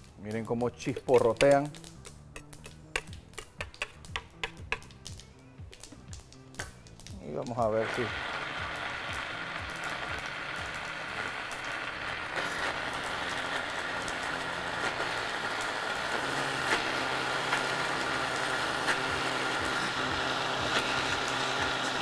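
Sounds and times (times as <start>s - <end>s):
mustard seeds popping in oil: 0.0s - 22.0s
blender running: 7.7s - 22.0s.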